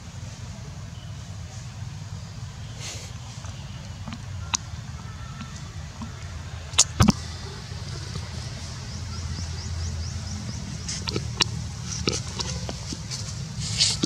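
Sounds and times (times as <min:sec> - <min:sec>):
macaques grunting and squealing: 0:10.7 - 0:14.0.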